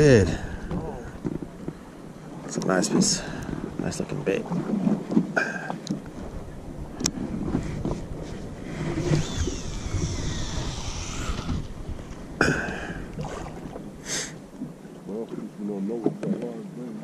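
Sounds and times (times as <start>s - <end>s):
low boat rumble: 0.0s - 17.0s
fishing reel spool whirring: 8.6s - 12.1s.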